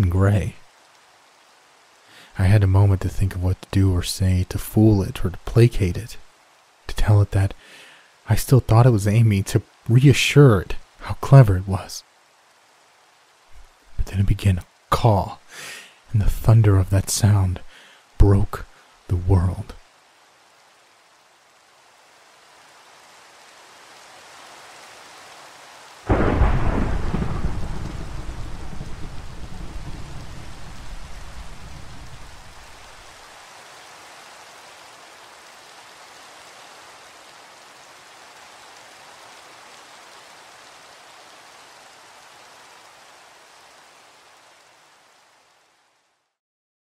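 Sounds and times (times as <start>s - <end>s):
steady rain: 0.0s - 46.4s
thunderclap rumbling: 26.1s - 32.8s.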